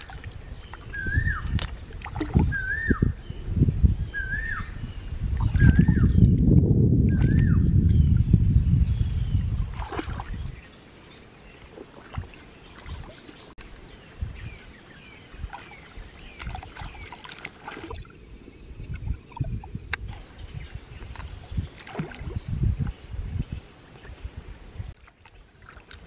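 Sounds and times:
stream water splashing: 0.0s - 2.9s, 9.6s - 14.0s, 14.9s - 26.0s
birds chirping: 0.0s - 25.0s.

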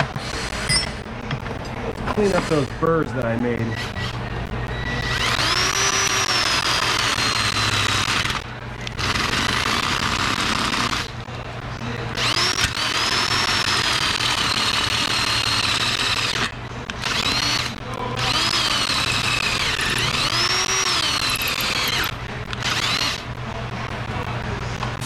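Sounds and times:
power drill squealing on metal: 2.2s - 2.7s, 3.6s - 8.4s, 12.2s - 23.2s.

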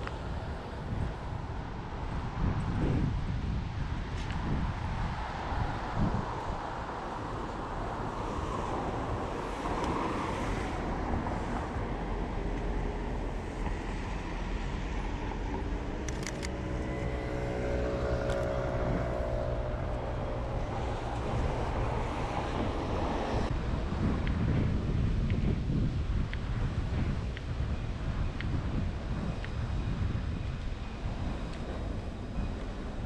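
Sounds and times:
traffic rumble: 0.0s - 33.0s
wind on microphone: 0.0s - 33.0s
vehicle passing: 5.1s - 24.1s
camera shutter clicks: 16.1s - 16.6s.

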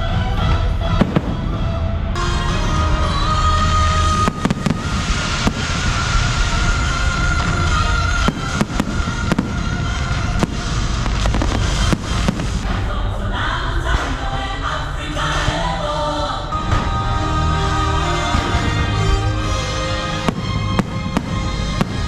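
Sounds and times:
loud music: 0.0s - 22.0s
fireworks bursting: 0.9s - 1.9s, 3.4s - 14.6s, 16.6s - 22.0s
fireworks sharp cracks: 4.0s - 12.9s, 18.3s - 22.0s.

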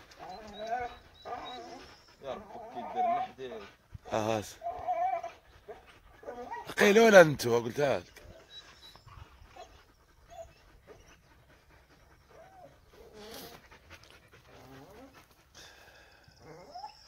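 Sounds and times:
dog whining: 0.1s - 6.8s, 8.3s - 11.3s, 11.9s - 13.7s, 16.4s - 17.0s.

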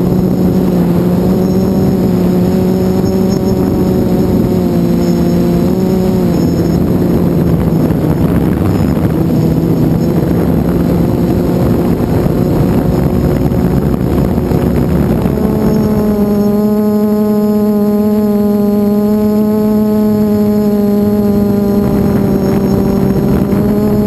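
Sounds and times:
rushing air noise: 0.0s - 17.6s
drone propellers whining: 0.0s - 24.0s.

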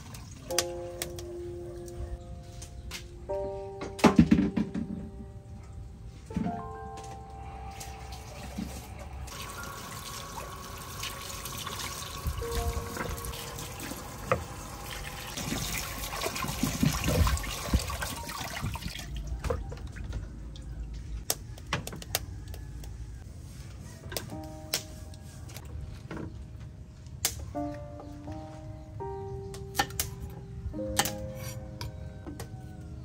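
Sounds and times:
hands rinsing vegetables in water: 7.9s - 20.0s
tap water running into bowl: 9.3s - 19.1s.

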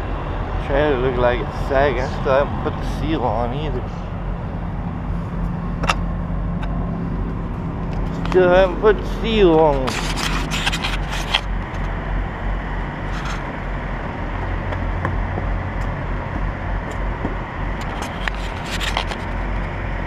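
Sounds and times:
diesel engine idling: 0.0s - 20.0s
clicks and scrapes: 7.9s - 8.4s, 9.6s - 11.9s, 13.1s - 13.5s, 17.8s - 19.7s.

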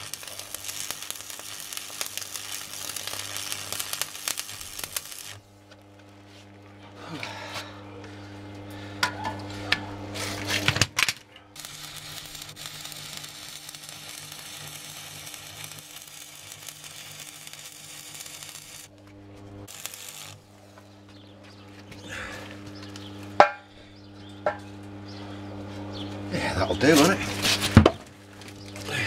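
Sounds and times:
welding arc crackling: 0.0s - 6.7s, 8.2s - 23.6s.

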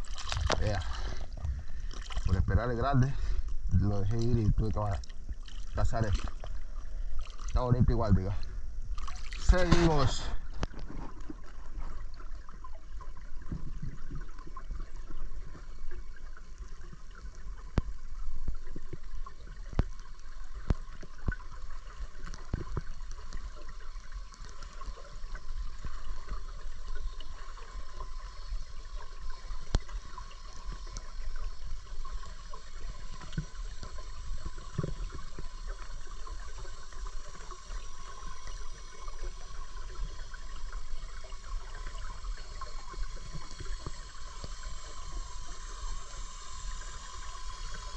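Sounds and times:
small clicks and crackles: 0.0s - 2.6s, 7.2s - 47.9s
muffled underwater river rush: 0.0s - 47.9s.

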